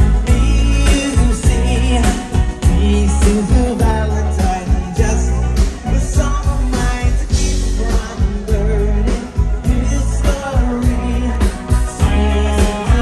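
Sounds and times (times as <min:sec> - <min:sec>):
bass: 0:00.0 - 0:13.0
drums: 0:00.0 - 0:13.0
electric guitars: 0:00.0 - 0:13.0
keyboards: 0:00.0 - 0:13.0.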